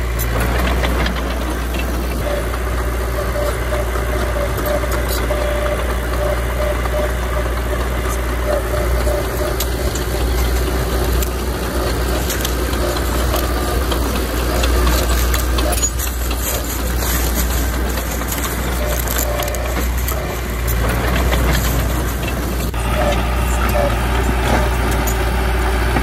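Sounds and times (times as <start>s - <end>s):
sharp cracks and clanks: 0.0s - 23.8s
bulldozer diesel engine running: 0.0s - 26.0s.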